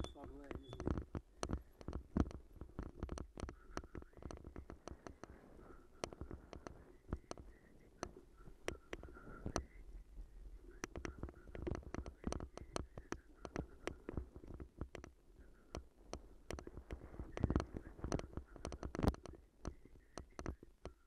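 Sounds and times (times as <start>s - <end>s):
bicycle knocking and rattling: 0.0s - 5.3s.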